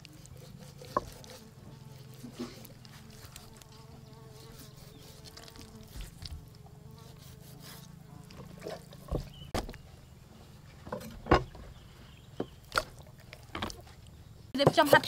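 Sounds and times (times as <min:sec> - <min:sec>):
insect buzz: 0:00.0 - 0:09.7.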